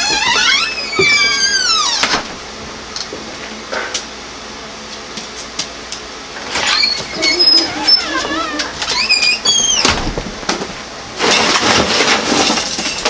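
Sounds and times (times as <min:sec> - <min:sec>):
door hinges squeaking: 0:00.0 - 0:02.4, 0:06.5 - 0:10.2.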